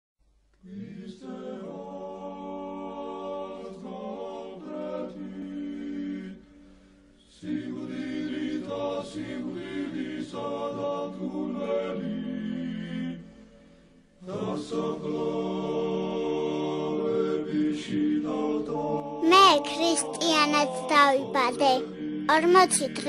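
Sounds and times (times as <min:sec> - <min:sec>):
choir singing unaccompanied chant: 0:00.6 - 0:06.5, 0:07.2 - 0:13.4, 0:14.2 - 0:23.0.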